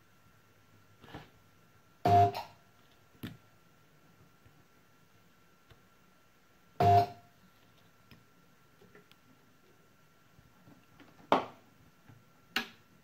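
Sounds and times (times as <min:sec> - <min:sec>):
short beep: 0:06.8 - 0:07.2.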